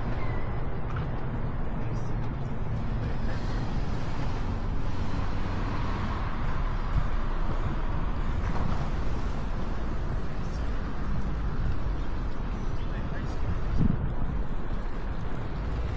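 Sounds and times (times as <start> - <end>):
wind rumble on microphone: 2.4 - 15.9.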